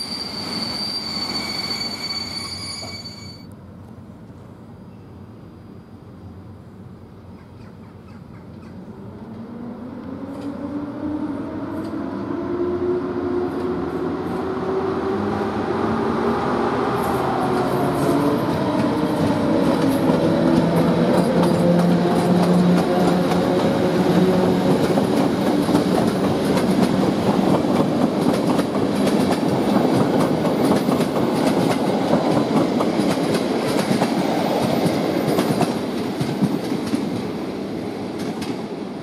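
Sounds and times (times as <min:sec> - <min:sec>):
electric locomotive humming: 0:08.8 - 0:39.0
train wheels clattering over rail joints: 0:24.6 - 0:37.3.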